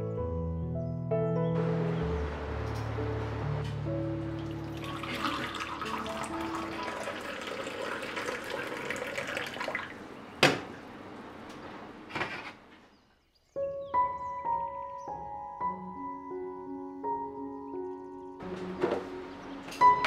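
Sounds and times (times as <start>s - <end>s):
tea pouring into cup: 4.4s - 10.0s.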